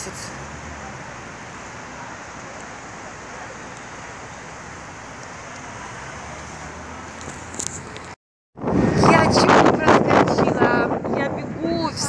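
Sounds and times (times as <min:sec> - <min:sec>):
city street traffic hiss: 0:00.0 - 0:08.2.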